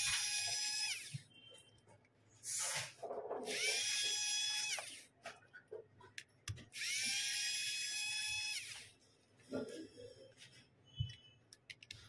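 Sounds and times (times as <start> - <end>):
electric screwdriver whine: 0.0 - 1.2, 3.5 - 5.0, 6.8 - 8.9.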